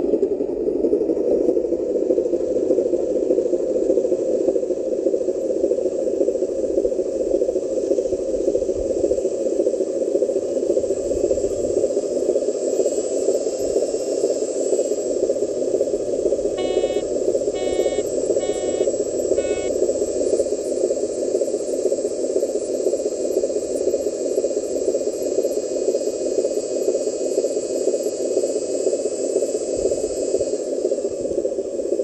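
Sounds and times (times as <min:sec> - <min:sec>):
faint high whine: 0:07.3 - 0:25.5.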